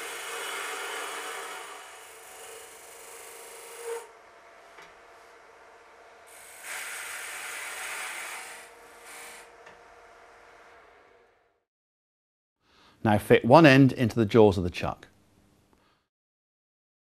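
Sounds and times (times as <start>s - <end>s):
lathe tool cutting wood: 0.0s - 4.1s, 6.3s - 9.5s.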